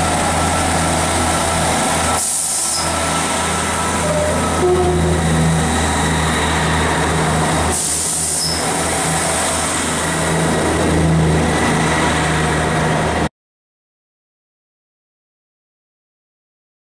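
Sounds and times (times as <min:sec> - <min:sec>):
diesel train engine idling: 0:00.0 - 0:13.3.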